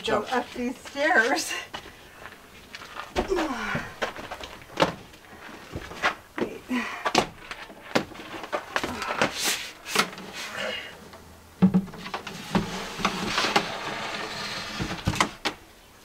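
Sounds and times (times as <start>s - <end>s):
wooden cabinet knocking and scraping: 11.6s - 15.6s.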